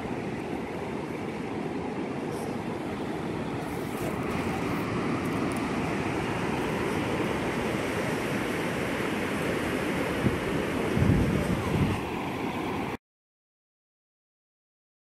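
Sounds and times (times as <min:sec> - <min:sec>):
ocean surf breaking on beach: 0:00.0 - 0:13.0
wind on microphone: 0:10.0 - 0:12.2.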